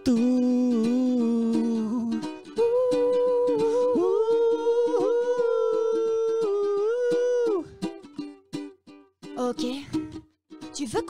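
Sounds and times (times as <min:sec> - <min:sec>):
person humming: 0:00.0 - 0:08.0
strummed ukulele: 0:00.0 - 0:11.0.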